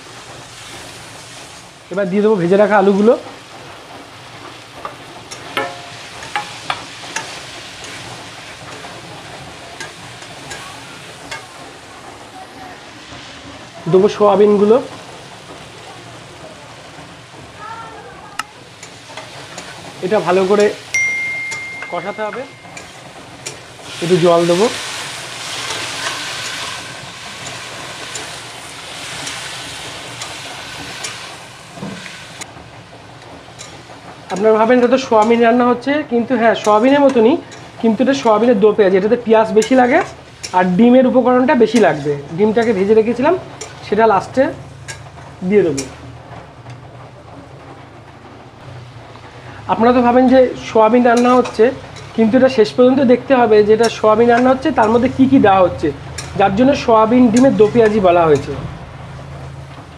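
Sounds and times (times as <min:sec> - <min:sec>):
masala sizzling in a pan: 0:00.0 - 0:46.8, 0:48.5 - 0:59.9
metal spatula clinking and scraping: 0:05.3 - 0:08.9, 0:20.6 - 0:23.7, 0:51.1 - 0:52.2, 0:56.2 - 0:56.4.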